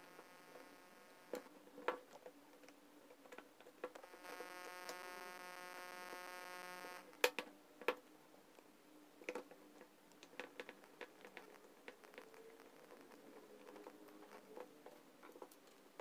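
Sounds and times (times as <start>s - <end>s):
steady buzzing hum: 0.0s - 1.5s, 4.0s - 7.2s.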